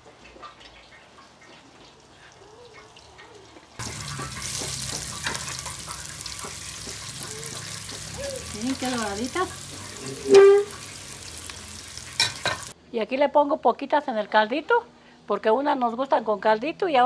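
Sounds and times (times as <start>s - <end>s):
fritters sizzling in hot oil: 3.8s - 12.8s.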